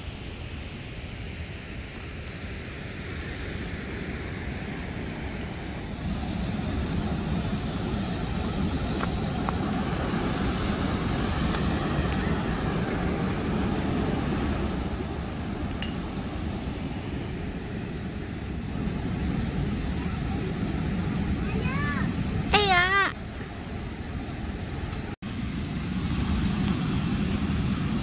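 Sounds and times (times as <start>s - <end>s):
wind rumble on microphone: 0.0s - 28.0s
river water rushing over dam: 1.4s - 28.0s.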